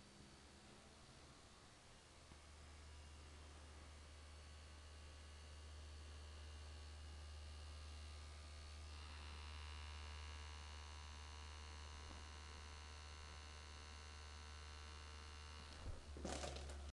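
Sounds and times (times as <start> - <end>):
electric massager humming: 0.0 - 16.9.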